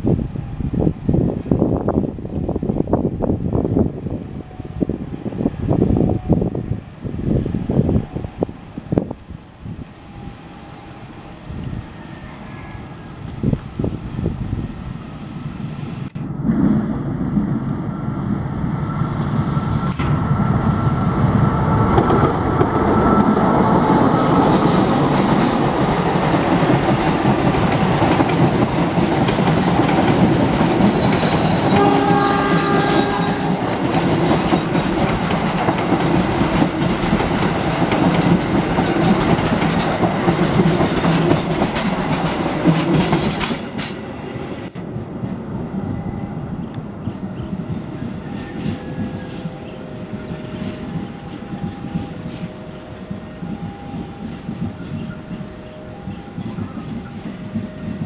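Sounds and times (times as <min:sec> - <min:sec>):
train wheels on rails: 0:00.0 - 0:58.0
locomotive engine: 0:15.1 - 0:49.4
train horn: 0:31.6 - 0:33.8.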